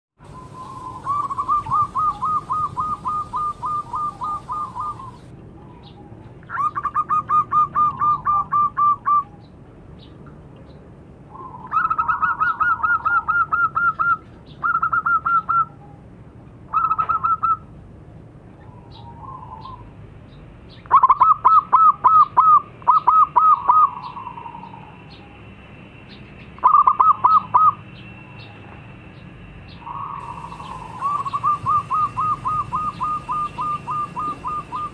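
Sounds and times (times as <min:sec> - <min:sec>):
dove cooing rapidly: 0:00.3 - 0:05.3, 0:05.9 - 0:09.3, 0:11.3 - 0:15.8, 0:16.7 - 0:17.7, 0:20.9 - 0:25.0, 0:26.6 - 0:27.8, 0:29.8 - 0:34.9.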